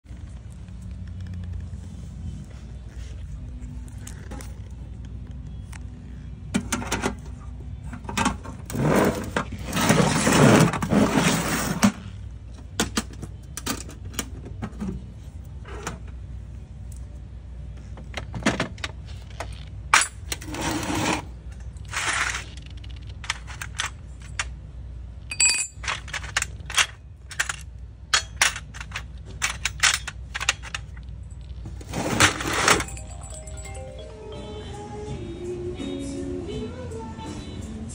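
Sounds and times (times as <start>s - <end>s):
metal tools clinking in tool box: 25.3s - 34.0s.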